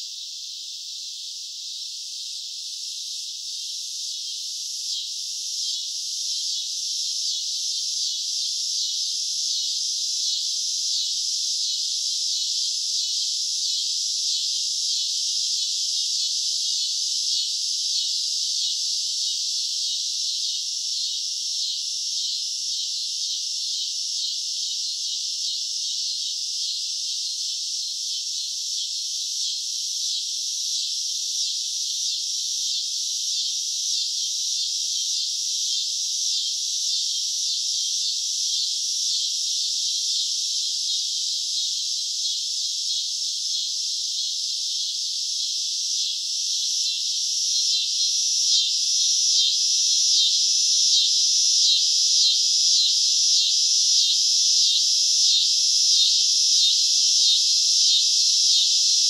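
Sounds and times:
cicadas buzzing: 0.2s - 59.0s.

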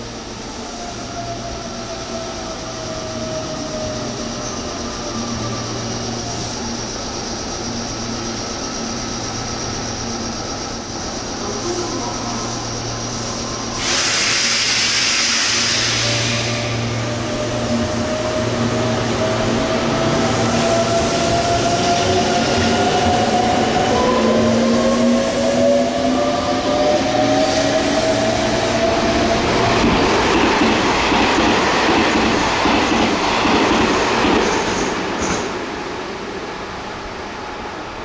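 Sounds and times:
train wheels clattering on rails: 29.1s - 35.7s.

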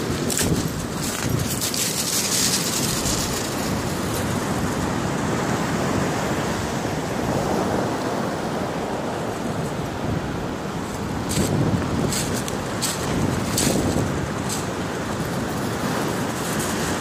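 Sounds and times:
surf on a shingle beach: 0.0s - 17.0s
wind: 0.0s - 17.0s.

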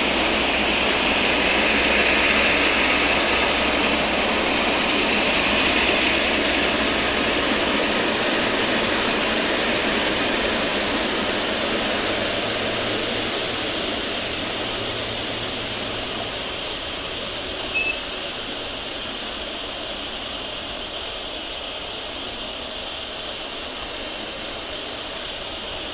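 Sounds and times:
jet engines rushing: 0.0s - 25.9s
brief high chirp: 17.7s - 18.0s.

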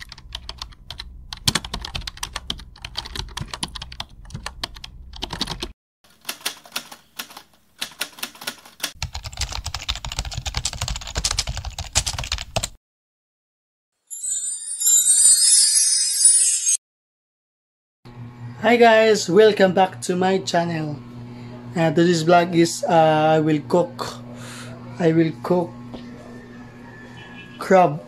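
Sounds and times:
keyboard typing clicks: 0.0s - 12.8s.

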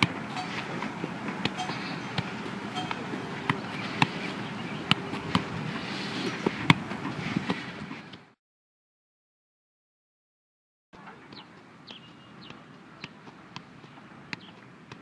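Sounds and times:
steady background noise: 0.0s - 8.4s.

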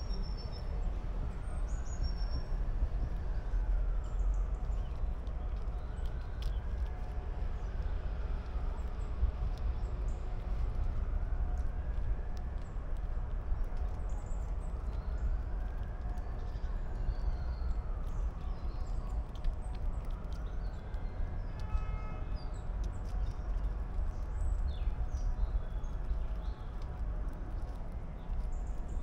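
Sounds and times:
squirrel gnawing a nut: 4.6s - 7.6s, 8.3s - 21.2s, 22.5s - 29.0s.

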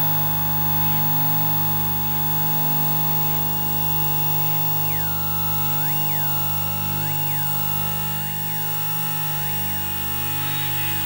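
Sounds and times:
electrical hum and drone: 0.8s - 11.0s
high tone sliding down: 5.7s - 11.0s
hiss: 9.7s - 11.0s.

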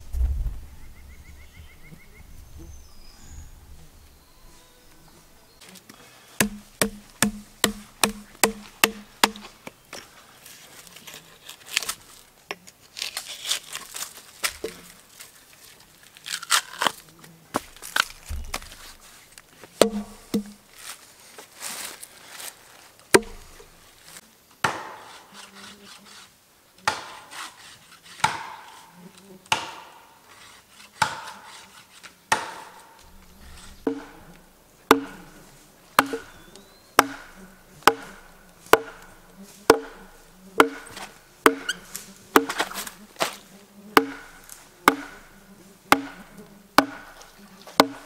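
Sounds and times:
hatchet strikes on log: 6.4s - 9.5s, 19.8s - 20.6s, 23.2s - 23.7s, 24.6s - 25.1s, 26.8s - 27.3s, 28.2s - 28.8s, 29.5s - 30.0s, 31.0s - 31.5s, 32.3s - 35.4s, 36.0s - 43.4s, 44.0s - 48.0s.

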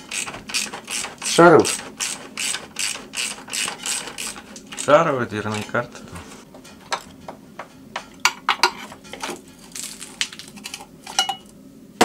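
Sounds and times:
metal tools clinking and tapping: 6.6s - 9.4s, 10.6s - 11.5s.

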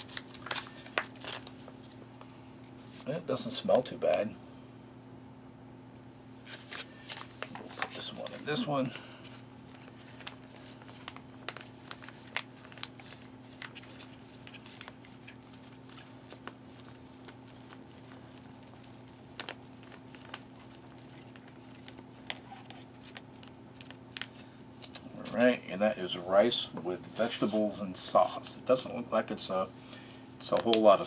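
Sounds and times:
foil pouch crinkling: 0.0s - 1.7s, 6.4s - 25.0s
steady low hum: 0.0s - 31.0s.

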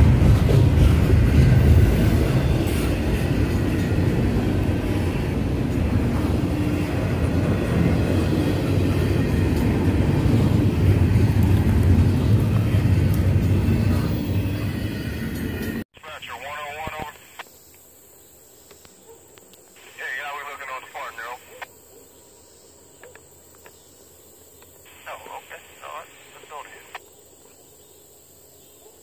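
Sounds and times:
train wheels rumbling on rails: 0.0s - 15.8s.

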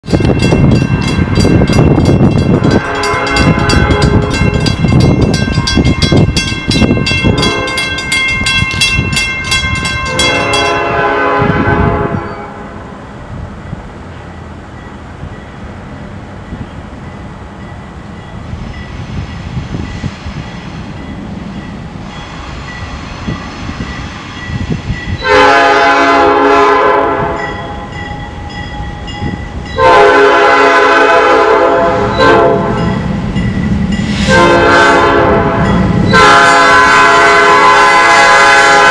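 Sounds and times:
crossing bell ringing: 0.0s - 11.4s, 13.6s - 26.6s, 27.2s - 37.4s
low train rumble: 0.0s - 38.9s
locomotive air horn blasts: 2.5s - 4.6s, 7.2s - 8.0s, 10.0s - 12.9s, 25.2s - 27.9s, 29.8s - 33.0s, 34.1s - 38.9s.

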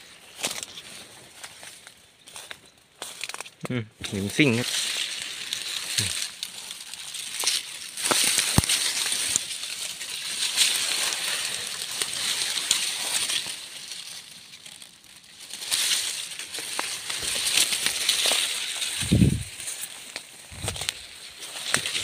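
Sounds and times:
dry grass rustling underfoot: 0.0s - 22.0s.

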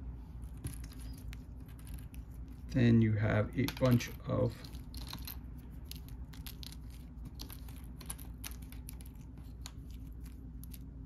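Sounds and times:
low steady hum: 0.0s - 11.0s
cardboard tokens clicking and rustling: 3.6s - 10.9s.

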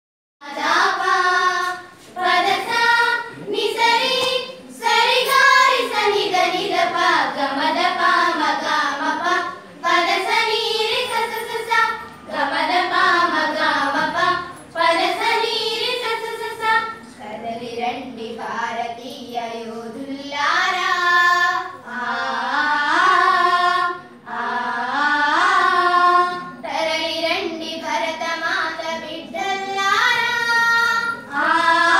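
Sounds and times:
children singing in unison: 0.4s - 31.9s.

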